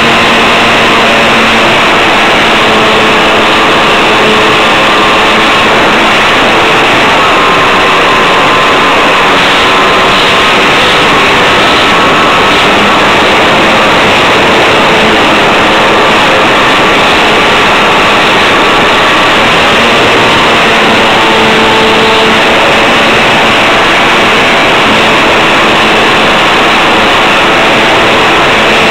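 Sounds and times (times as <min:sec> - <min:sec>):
model airplane motor whining: 0:00.0 - 0:28.9.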